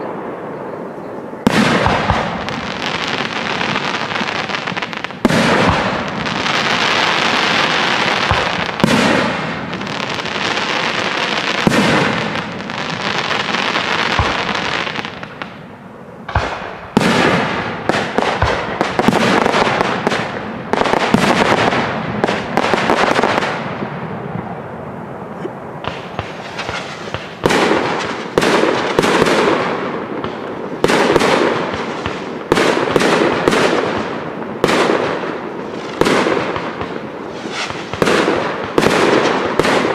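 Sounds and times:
firework shells bursting: 0:25.8 - 0:35.1, 0:35.9 - 0:39.9.

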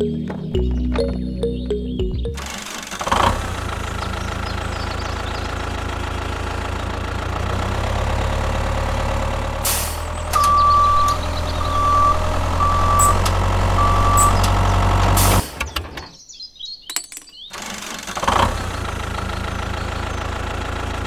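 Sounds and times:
tractor engine running: 0:00.0 - 0:16.0, 0:17.5 - 0:21.0
reversing alarm beeping: 0:10.3 - 0:14.6.

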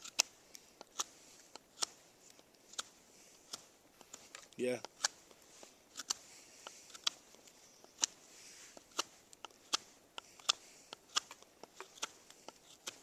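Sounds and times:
knife whittling wood: 0:02.7 - 0:13.0.

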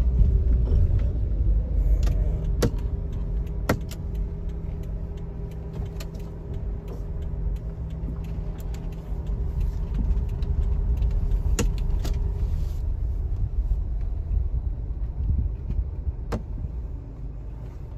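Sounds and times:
car engine and tyres rumble: 0:00.0 - 0:17.9
sharp clicks: 0:02.0 - 0:12.3.

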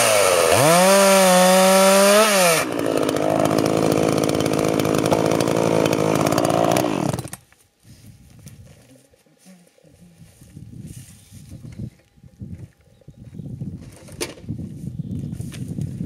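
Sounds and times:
chainsaw cutting log: 0:00.0 - 0:07.5.

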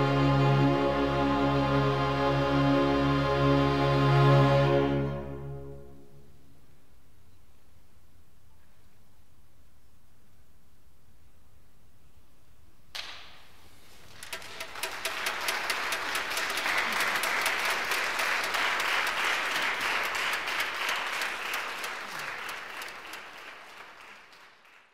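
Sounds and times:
audience applauding: 0:13.9 - 0:24.9.

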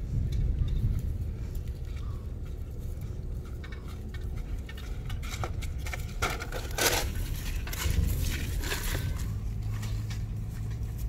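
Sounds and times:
footsteps in dry grass: 0:00.0 - 0:11.0
low rumble: 0:00.0 - 0:11.0.

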